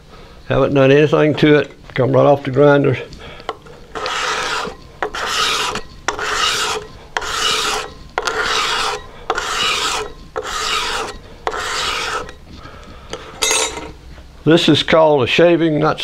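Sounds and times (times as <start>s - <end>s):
scraper rasping on wood: 3.6s - 12.4s.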